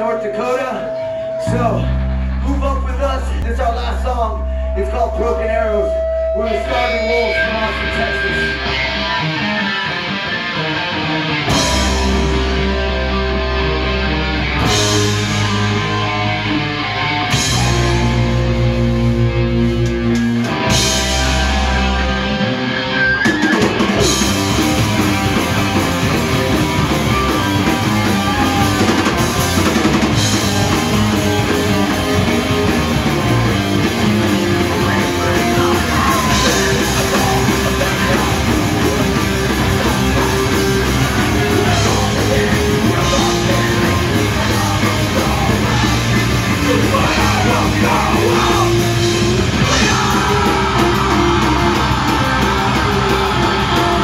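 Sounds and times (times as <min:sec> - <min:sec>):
distorted electric guitars: 0:00.0 - 0:54.0
rock vocals: 0:00.0 - 0:54.0
drum kit: 0:11.4 - 0:54.0.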